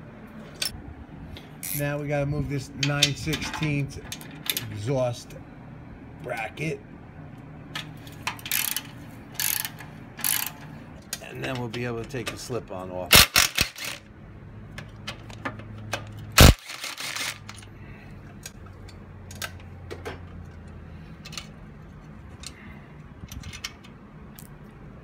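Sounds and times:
cordless power driver bursts: 13.1s - 14.0s, 16.4s - 17.4s.

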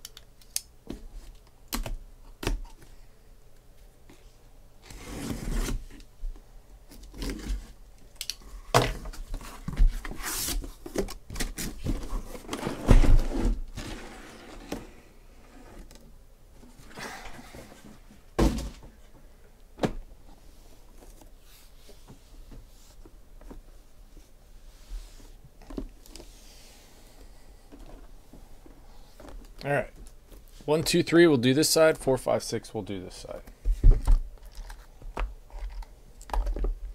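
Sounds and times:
boxes thunking down: 11.3s - 14.1s, 16.9s - 19.0s.

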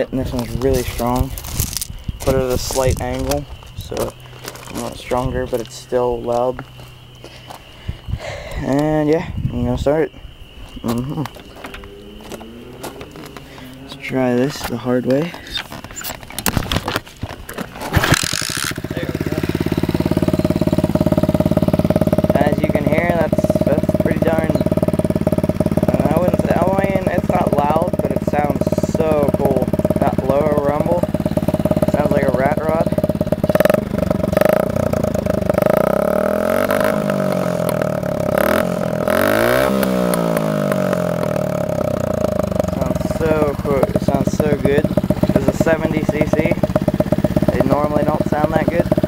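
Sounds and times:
dirt bike engine starting and idling: 0.0s - 9.0s, 10.4s - 49.0s.

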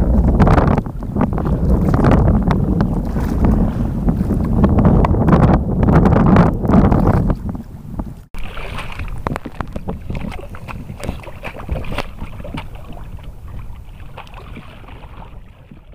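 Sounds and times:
canoe being paddled: 0.0s - 15.9s
wind buffeting microphone: 0.0s - 15.9s
small waves lapping and splashing: 0.8s - 4.6s, 8.3s - 15.9s.

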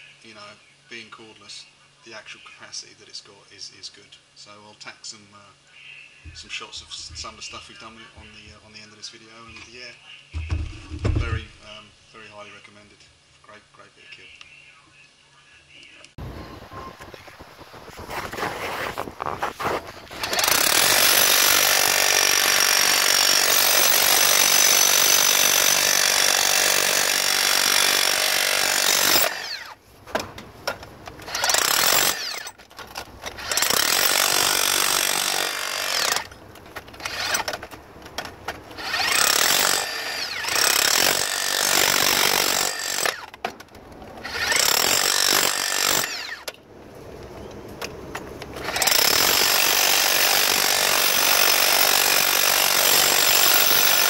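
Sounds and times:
hammer drill breaking ground: 18.1s - 29.8s, 31.1s - 43.3s, 44.2s - 46.5s, 48.6s - 54.0s.

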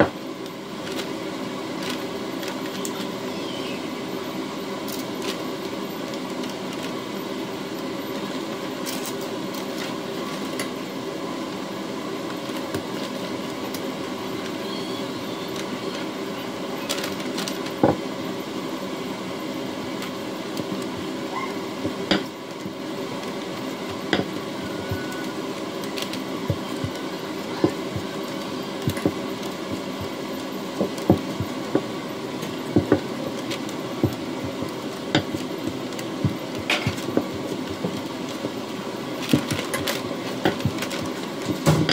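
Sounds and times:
appliance hum: 0.0s - 41.9s
rolling pin on counter: 24.0s - 25.1s.

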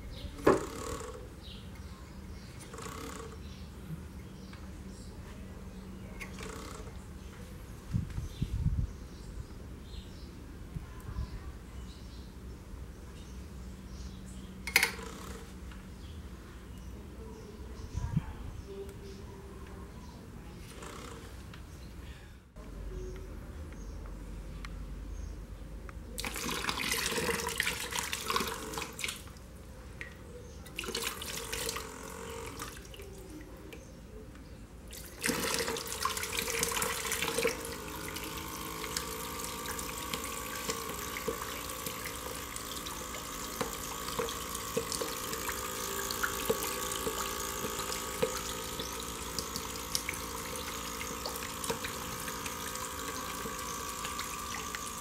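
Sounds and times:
faint steady hum: 0.0s - 55.0s
water jet rushing into basin: 26.2s - 29.3s, 30.8s - 32.9s, 34.9s - 55.0s
water splashing onto a water wheel: 26.2s - 29.5s, 30.8s - 33.2s, 34.9s - 55.0s.

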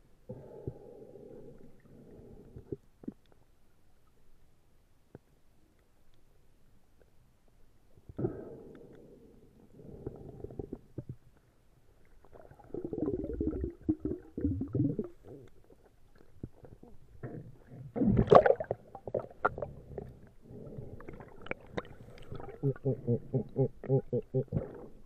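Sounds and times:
underwater air bubbles burbling: 12.3s - 15.8s, 16.4s - 25.0s.

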